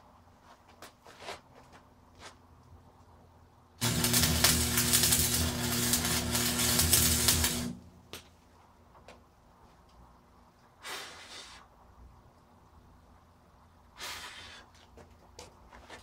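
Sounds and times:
welding arc crackling: 3.8s - 8.0s
welder hum: 3.8s - 8.1s.

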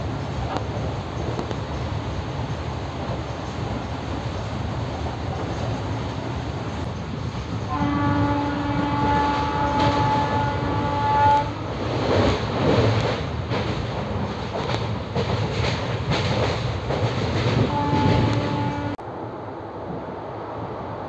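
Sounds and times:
moving train rumble: 0.0s - 21.0s
multi-tone train horn: 7.6s - 11.7s, 17.6s - 19.0s.

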